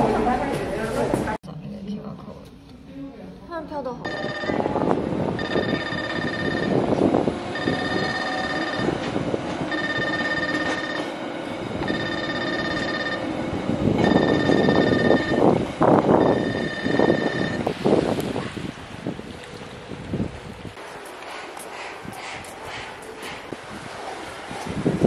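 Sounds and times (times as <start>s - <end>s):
level crossing alarm ringing: 4.0s - 17.7s
train rumble: 4.1s - 25.0s.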